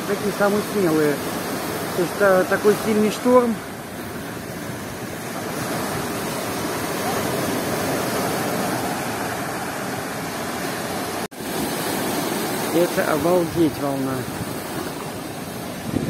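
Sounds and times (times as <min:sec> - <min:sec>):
waves breaking and foam washing: 0:00.0 - 0:16.0.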